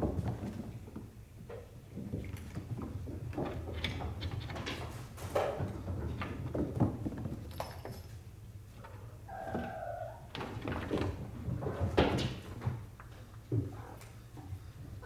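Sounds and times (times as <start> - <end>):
cats tapping on tiled floor: 0.0 - 8.2.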